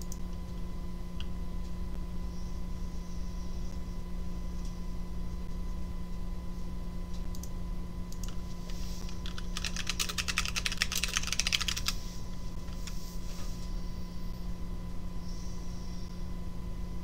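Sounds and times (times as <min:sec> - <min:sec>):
typing on a keyboard: 0:09.2 - 0:12.0.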